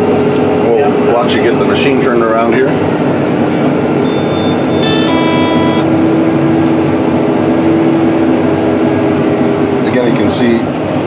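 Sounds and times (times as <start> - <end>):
tractor engine drone: 0.0 - 11.0
high electronic tone: 4.0 - 6.0.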